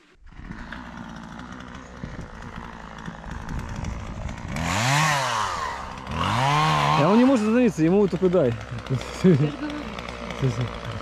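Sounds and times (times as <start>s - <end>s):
chainsaw idling and revving: 0.0s - 11.0s.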